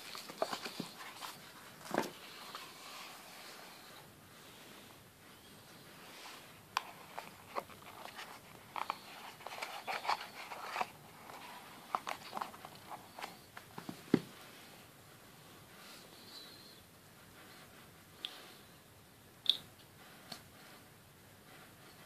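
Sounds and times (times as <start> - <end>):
cardboard and plastic packaging rustling: 0.0 - 3.2, 6.3 - 14.4.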